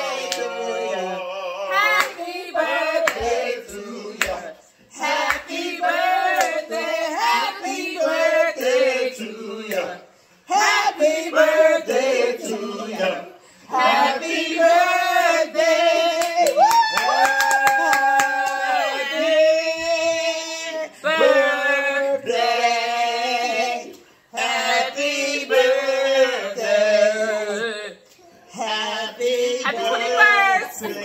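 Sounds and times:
group singing a celebration song: 0.0s - 31.0s
hand claps: 3.0s - 3.4s, 4.2s - 4.4s, 16.2s - 18.6s.

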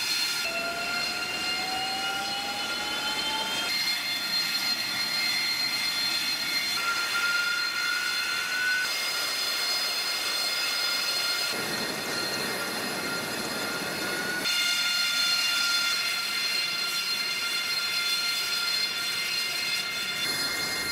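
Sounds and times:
rushing jet noise: 0.0s - 14.5s
turbofan engine whine: 0.0s - 14.6s, 20.1s - 20.9s.

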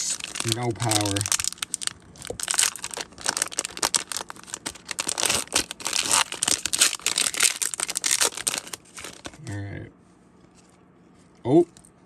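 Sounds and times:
plastic foil wrapper tearing: 0.0s - 9.4s.

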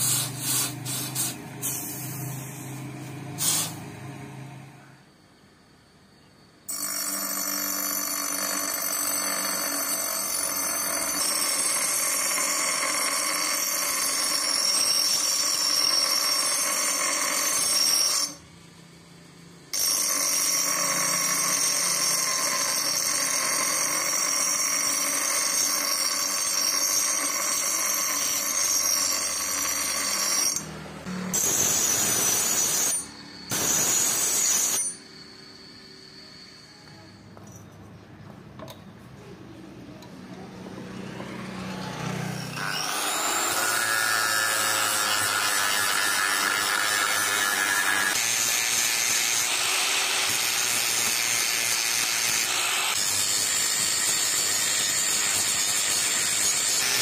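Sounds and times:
metal grinding on grinder wheel: 6.7s - 18.4s, 19.8s - 37.5s, 41.0s - 57.0s.

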